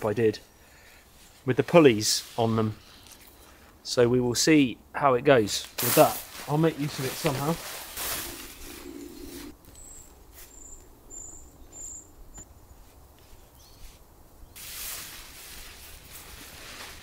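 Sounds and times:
tarp rustling: 5.6 - 9.6, 14.6 - 17.0
small bird chirping: 8.4 - 12.5.

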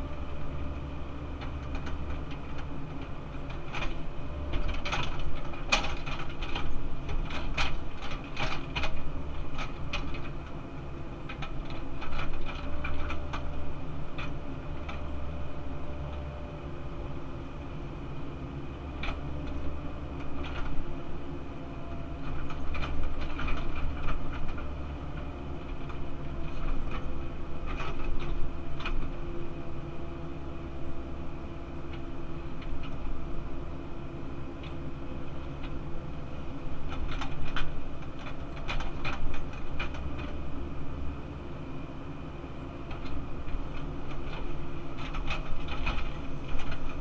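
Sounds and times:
excavator diesel engine running: 0.0 - 47.0.

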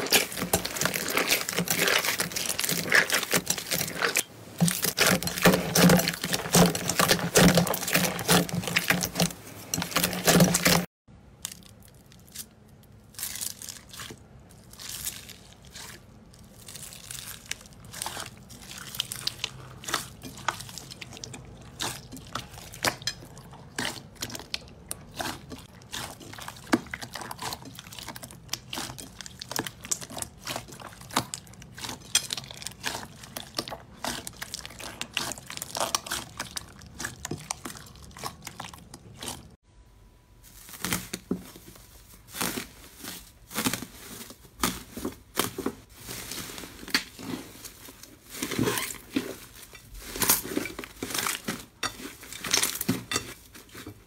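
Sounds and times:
foil crinkling: 0.0 - 10.9, 40.4 - 54.0
hands squishing crunchy slime: 0.0 - 39.6, 40.4 - 54.0.

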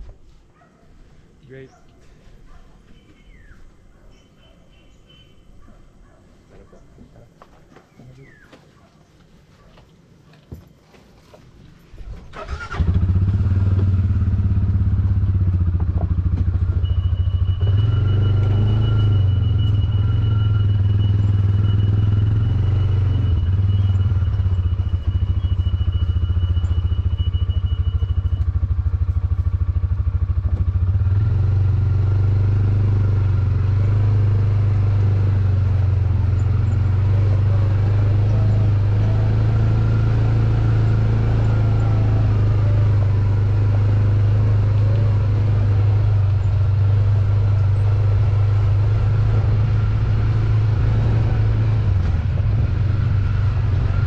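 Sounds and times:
motorcycle engine running: 12.4 - 54.0.

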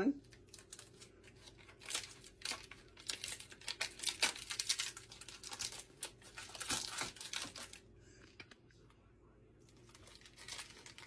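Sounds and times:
plastic packaging crinkling: 0.2 - 8.6, 9.7 - 11.0.

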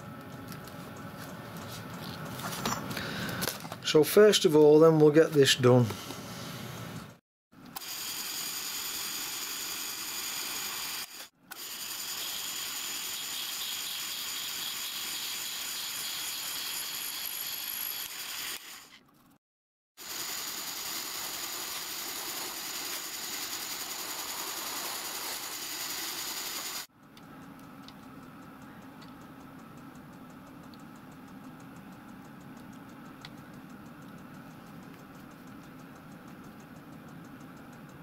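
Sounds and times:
quiet machine hum: 0.0 - 7.8, 26.8 - 38.0
pillar drill cutting metal: 7.8 - 19.0
faint ticks: 27.4 - 38.0.

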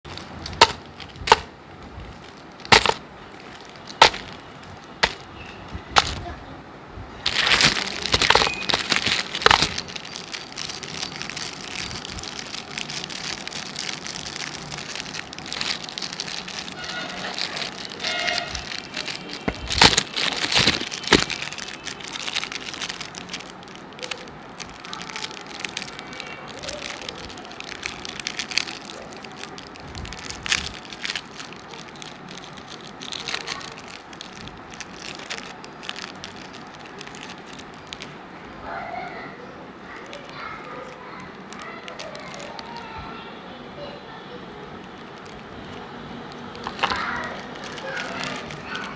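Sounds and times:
plastic wrappers crinkling: 0.0 - 6.4, 7.2 - 43.0, 44.5 - 48.9
packets tapping into wooden tray: 0.5 - 1.5, 2.7 - 3.0, 3.9 - 4.4, 5.0 - 5.2
wrapper pulled open: 2.1 - 5.2, 7.2 - 38.2, 39.9 - 42.9, 44.8 - 48.9.

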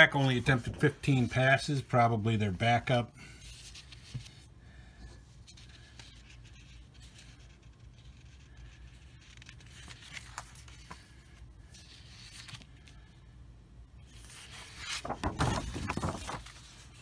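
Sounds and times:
card sheets rustling: 0.0 - 4.5, 5.4 - 13.1, 14.0 - 17.0
paper crinkling: 5.5 - 13.1, 14.1 - 17.0.

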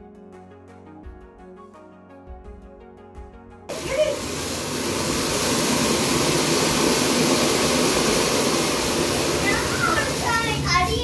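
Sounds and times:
firework hissing: 3.7 - 11.0.

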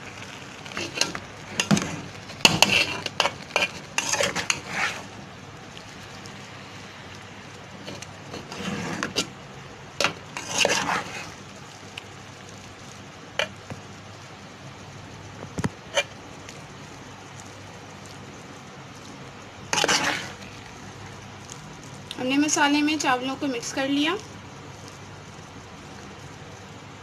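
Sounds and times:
metal spoon scraping pot: 0.6 - 5.1, 7.8 - 9.3, 10.0 - 11.3, 19.7 - 20.4.

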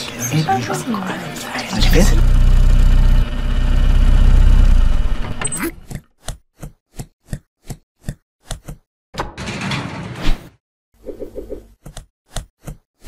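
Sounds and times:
longer noisy sound: 1.8 - 5.4
cartoon van engine rumble: 1.8 - 5.5.

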